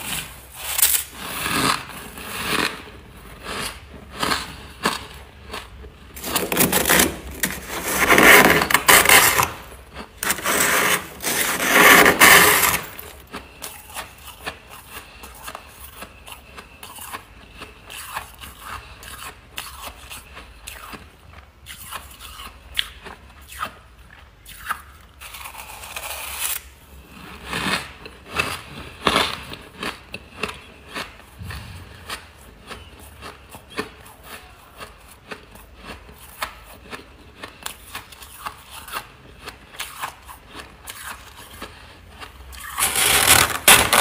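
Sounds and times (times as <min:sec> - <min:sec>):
spoon scraping frost: 0:00.0 - 0:15.3, 0:42.5 - 0:44.0
crunchy chewing of frost: 0:00.0 - 0:44.0.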